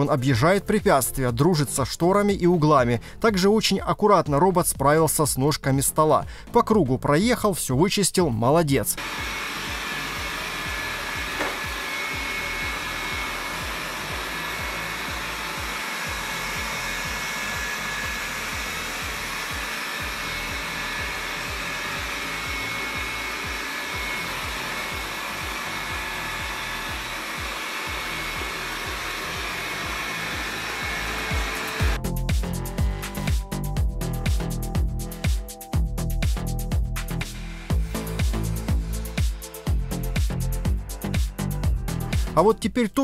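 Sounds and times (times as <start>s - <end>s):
robot vacuum whirring: 9.0s - 32.0s.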